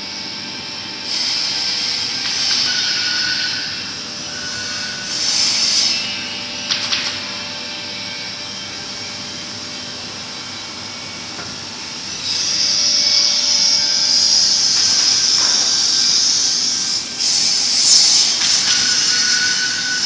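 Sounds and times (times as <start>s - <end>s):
cnc router machinery running: 0.0s - 20.0s
high hissing rush: 8.9s - 20.0s.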